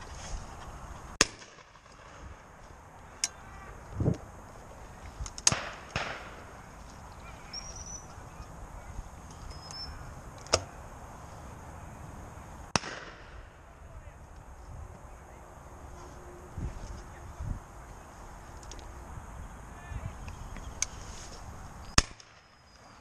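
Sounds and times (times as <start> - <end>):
shotgun shots with echo: 5.5 - 6.4, 12.7 - 13.5.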